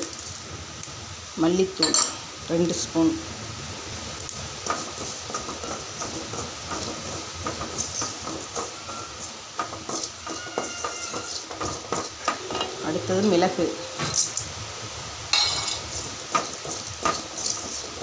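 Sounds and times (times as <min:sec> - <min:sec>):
spices sizzling: 0:00.0 - 0:18.0
wooden spatula scraping metal pan: 0:04.7 - 0:14.4, 0:15.5 - 0:18.0.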